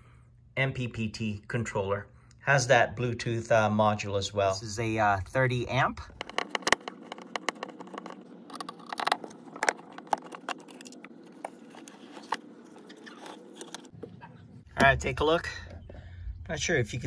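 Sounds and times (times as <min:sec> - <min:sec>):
screwdriver clicks and scrapes: 0:06.2 - 0:13.9.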